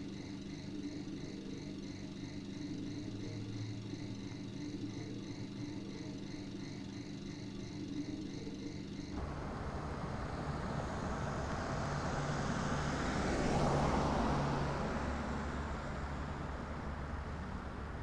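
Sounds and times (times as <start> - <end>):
car driving past: 9.2 - 18.0.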